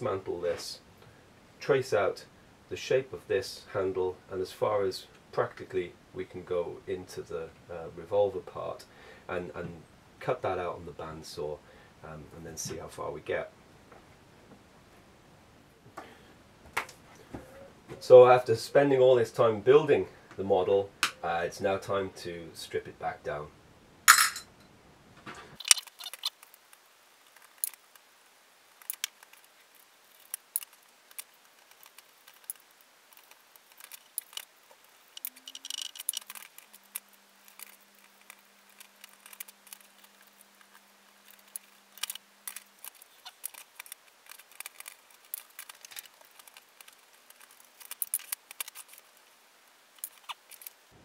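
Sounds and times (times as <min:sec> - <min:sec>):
plastic parts clicking and clattering: 0:25.6 - 0:26.4, 0:30.1 - 0:49.3, 0:50.0 - 0:50.8.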